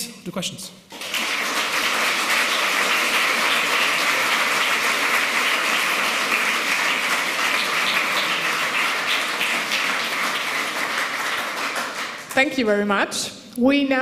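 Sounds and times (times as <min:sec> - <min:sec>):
audience applauding: 0:00.9 - 0:12.4.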